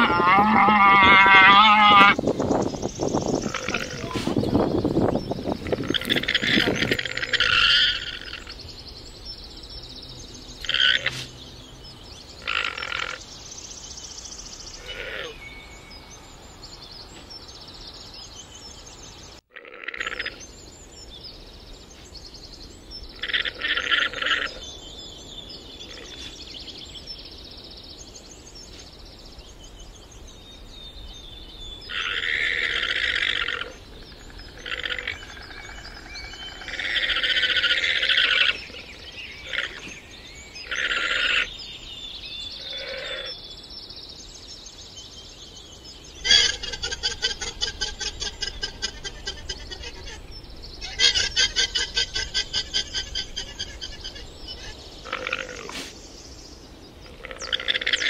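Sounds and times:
llamas making rasping calls: 0.0 - 2.2, 3.4 - 4.5, 5.6 - 8.6.

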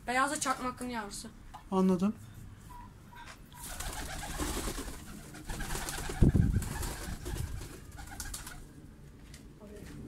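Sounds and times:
wings fluttering: 3.6 - 8.8.

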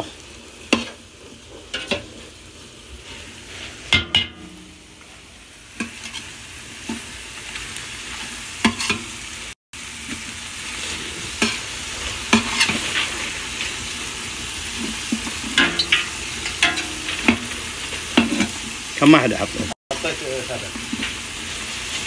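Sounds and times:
food sizzling in a pot: 0.0 - 22.0
metal spoon scraping a pot: 11.4 - 13.4.

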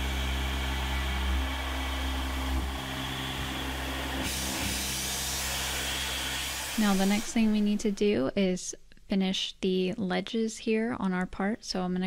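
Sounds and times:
milling machine hum and hiss: 0.0 - 7.9.

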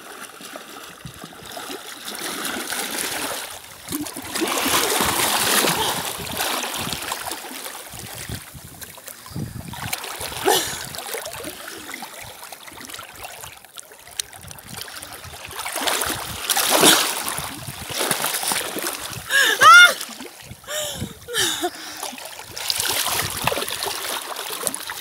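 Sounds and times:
sea water sloshing and splashing: 0.0 - 25.0.

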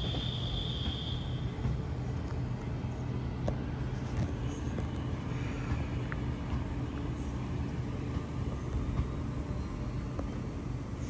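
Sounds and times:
electric train humming and rumbling: 0.0 - 11.0.

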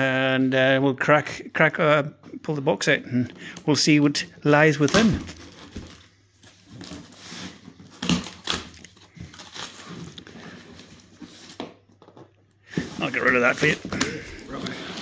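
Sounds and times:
cardboard scraping and rustling: 4.8 - 12.0, 12.7 - 15.0.

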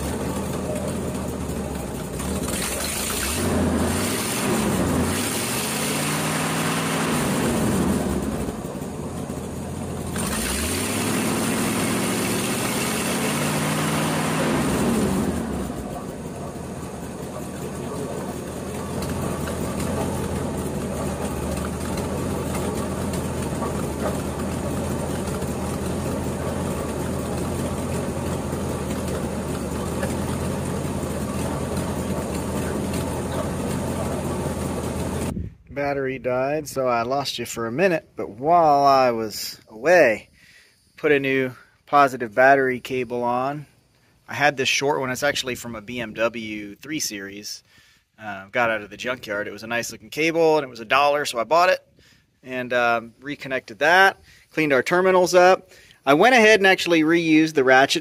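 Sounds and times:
noisy water pump: 0.0 - 35.4
truck engine revving and idling: 0.0 - 35.4.

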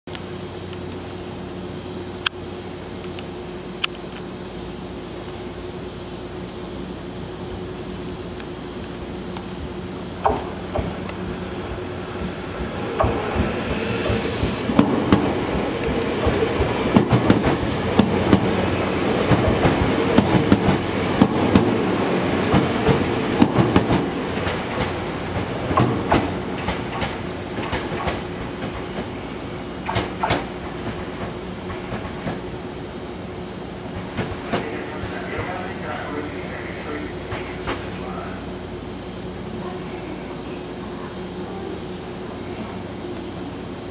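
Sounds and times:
train wheels clacking over rail joints: 22.5 - 29.1, 29.8 - 32.4.

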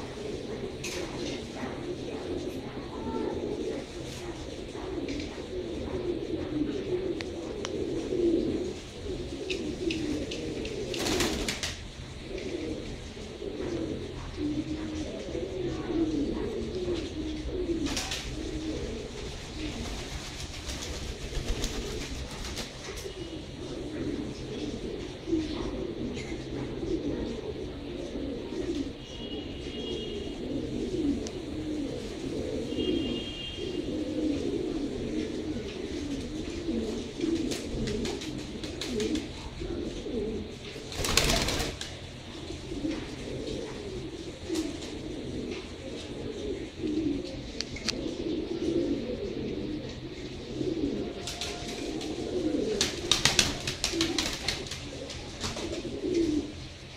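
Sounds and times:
pigeons cooing: 0.0 - 56.9
wing flapping: 9.4 - 11.9, 17.8 - 23.2, 40.8 - 42.1, 51.2 - 56.4.

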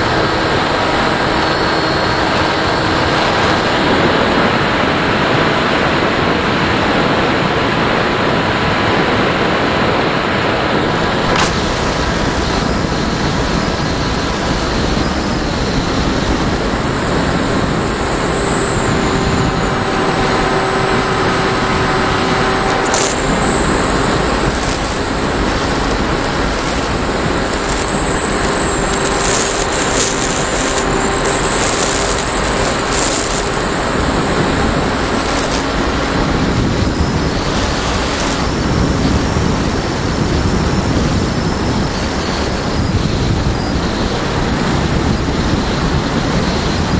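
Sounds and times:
thin high motor whine: 0.0 - 46.9
rush of air: 10.4 - 46.9.

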